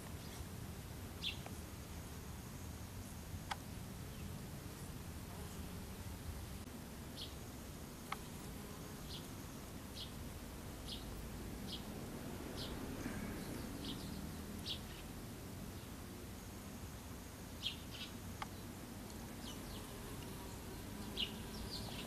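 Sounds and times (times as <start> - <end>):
small bird chirping: 1.2 - 1.5, 10.8 - 11.9, 12.5 - 16.0, 17.6 - 22.0.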